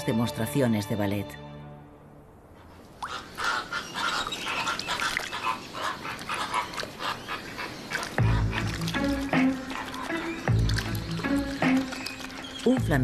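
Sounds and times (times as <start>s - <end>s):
flamingos calling: 2.9s - 13.0s.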